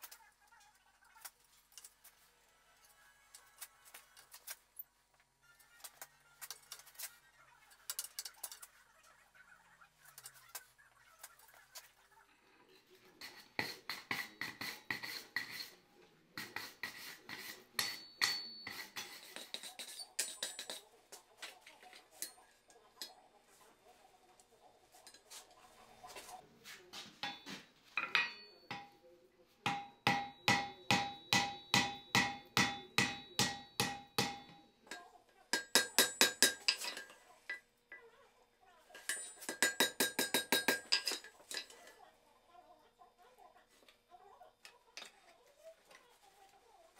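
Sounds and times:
hammer ringing on anvil: 17.8 - 19.2, 27.2 - 29.0, 29.7 - 34.8, 35.6 - 37.1, 39.1 - 41.3.

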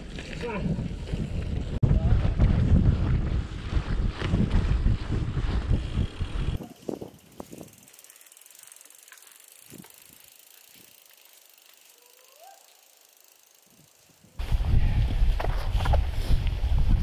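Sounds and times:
wind buffeting microphone: 0.0 - 8.0, 14.2 - 17.0.

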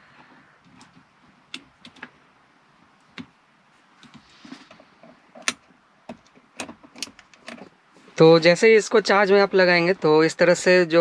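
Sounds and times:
charging cable clicks and rustles: 0.0 - 2.2, 4.0 - 7.7.

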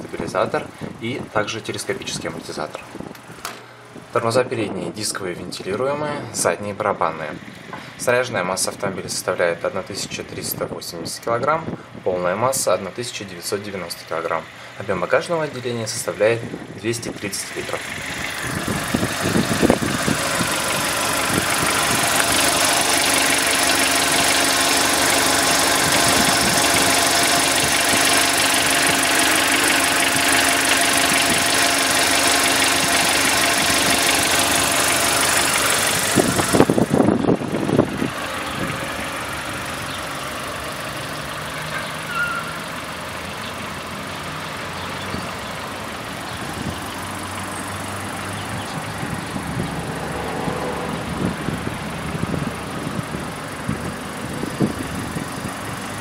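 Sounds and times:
car engine idling with hiss: 0.1 - 1.3, 14.4 - 15.5, 16.2 - 56.0.

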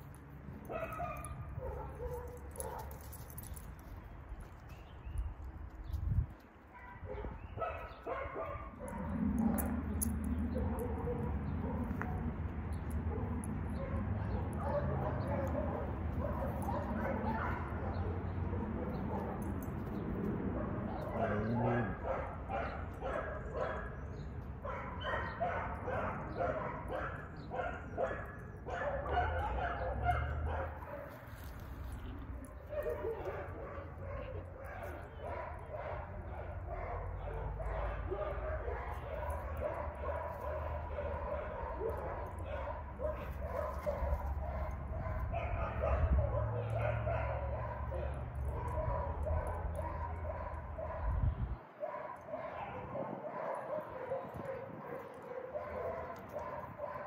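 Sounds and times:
dog barking: 0.6 - 3.0, 6.8 - 9.2, 10.5 - 12.2, 13.1 - 19.4, 20.5 - 31.6, 32.6 - 51.2, 51.8 - 57.0.

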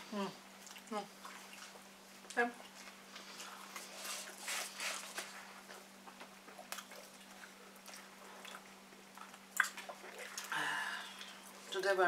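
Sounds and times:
people chewing food: 0.0 - 12.0.

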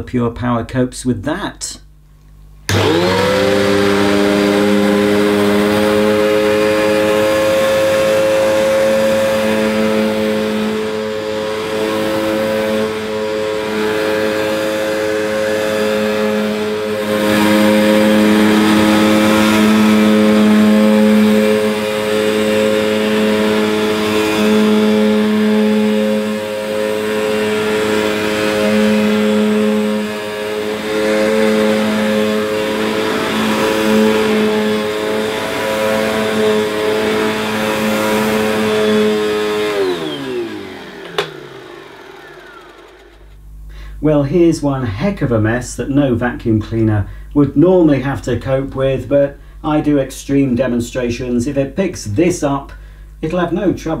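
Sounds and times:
vacuum cleaner running on carpet: 2.7 - 43.4
vacuum motor winding down: 2.7 - 43.5.

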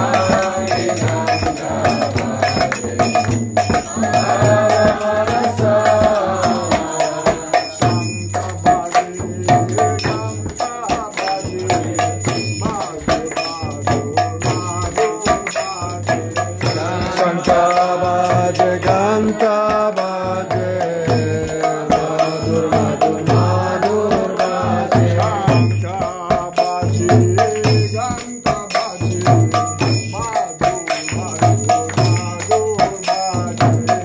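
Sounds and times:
voices chanting a melody: 0.0 - 13.4, 16.6 - 25.9
metallic strikes keeping beat: 0.0 - 34.0
ringing bell: 0.0 - 34.0.

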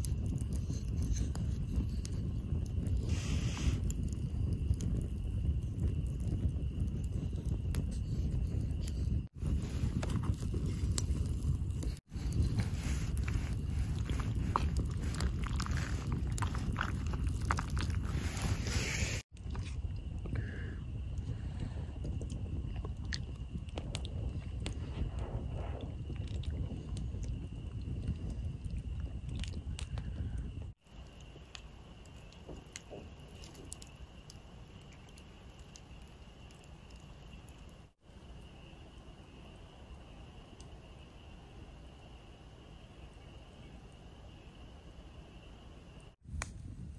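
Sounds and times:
steady low rumble: 0.0 - 32.1
campfire crackling: 0.0 - 40.8, 46.0 - 46.9
insects chirring: 0.0 - 46.2.

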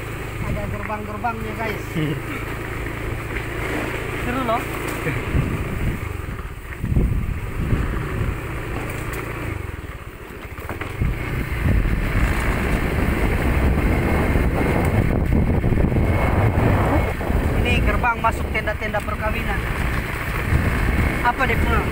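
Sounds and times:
motor scooter engine: 0.0 - 21.9
road rumble: 0.0 - 21.9
wind on microphone: 5.1 - 8.8, 10.9 - 21.9.

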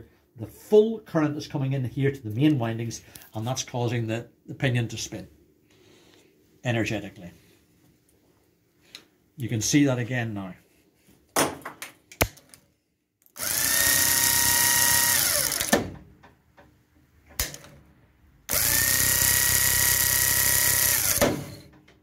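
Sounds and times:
starter motor whining: 13.4 - 15.8, 18.5 - 21.7.

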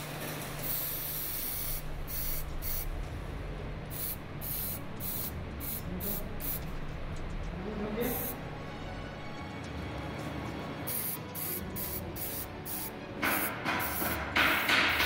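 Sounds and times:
spray paint can hissing: 0.6 - 2.9, 3.9 - 6.7, 8.0 - 8.4, 10.9 - 15.0.

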